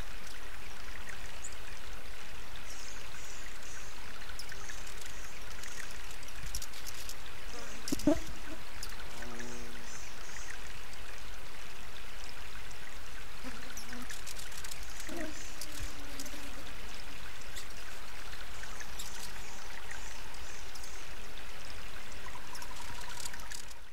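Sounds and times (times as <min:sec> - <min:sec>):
fountain water trickling: 0:00.0 - 0:23.9.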